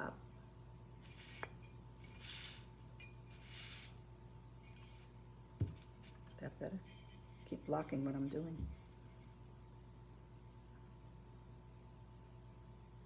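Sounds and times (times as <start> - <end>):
steady low hum: 0.0 - 13.0
ceramic pieces scraping and rustling: 1.0 - 4.0, 4.6 - 5.2, 5.8 - 9.4
soft brush strokes: 1.0 - 5.2, 5.8 - 9.5.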